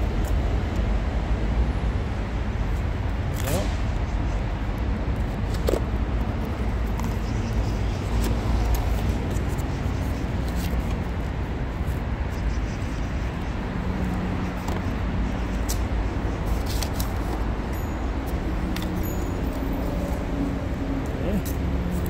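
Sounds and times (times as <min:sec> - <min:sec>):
road traffic rumble: 0:00.0 - 0:22.0.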